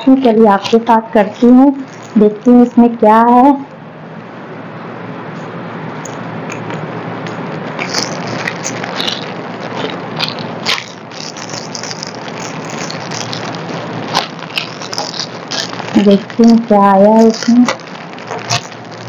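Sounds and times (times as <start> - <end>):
plastic bag crinkling and tearing: 7.7 - 19.0.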